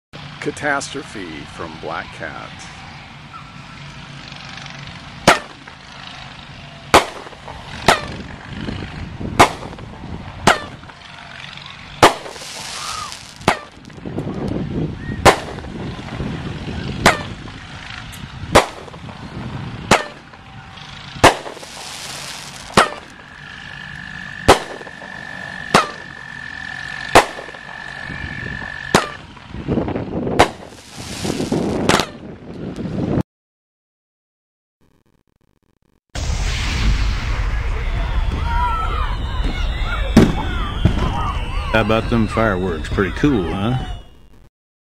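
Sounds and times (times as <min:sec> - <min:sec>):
firework crackle and rumble: 0:04.4 - 0:33.0, 0:36.2 - 0:42.9
firework bangs: 0:05.2 - 0:05.8, 0:06.9 - 0:08.3, 0:09.3 - 0:11.0, 0:12.0 - 0:14.0, 0:15.2 - 0:16.2, 0:18.5 - 0:20.4, 0:21.2 - 0:23.6, 0:24.4 - 0:26.2, 0:27.0 - 0:27.8, 0:28.8 - 0:29.4, 0:30.3 - 0:32.2, 0:36.2 - 0:41.5
hissing: 0:12.1 - 0:13.5, 0:21.3 - 0:22.8
high whistle: 0:36.3 - 0:44.3.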